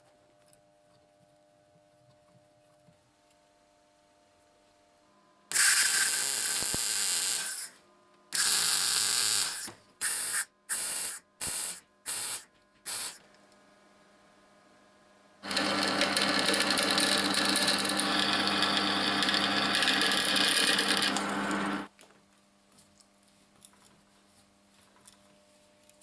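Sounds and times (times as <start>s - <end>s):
drill press drilling steel: 15.4s - 21.9s.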